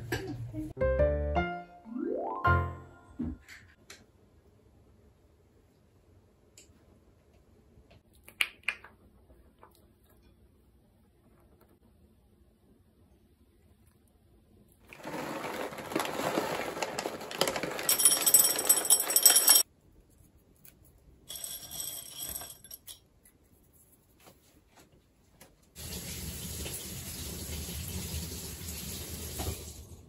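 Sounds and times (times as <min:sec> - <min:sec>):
hands rustling and breaking kibble: 0:14.9 - 0:18.3
dry kibble rattling into a bowl: 0:14.9 - 0:19.6.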